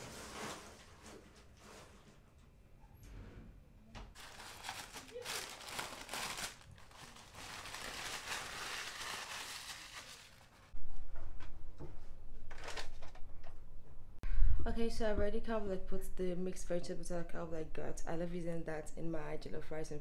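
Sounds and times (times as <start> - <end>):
plastic wrapping crinkling: 4.2 - 10.7.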